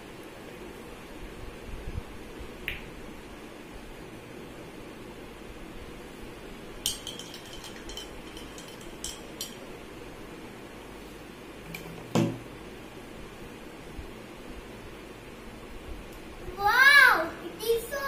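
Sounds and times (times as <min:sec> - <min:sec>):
spoon clinking against glass: 0:06.8 - 0:09.7.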